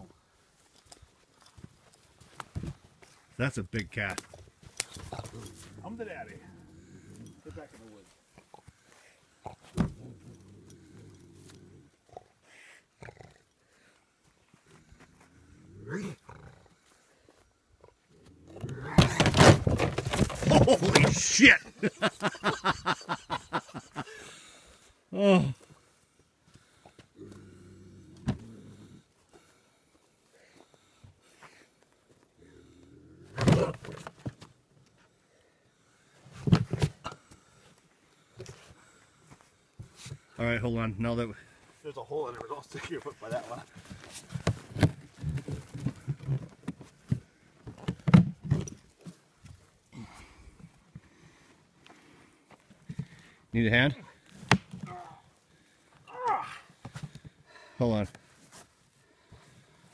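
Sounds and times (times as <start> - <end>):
bobcat growling: 5.0 - 7.6, 9.4 - 12.4, 15.1 - 16.8, 17.8 - 19.4, 27.2 - 29.1, 32.4 - 34.0.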